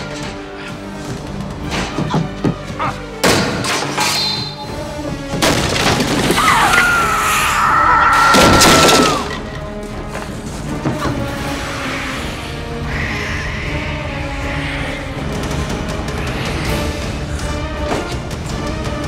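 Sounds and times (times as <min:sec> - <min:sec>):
tense film score: 0:00.0 - 0:19.0
wood splintering and smashing: 0:05.2 - 0:06.9, 0:08.1 - 0:09.7.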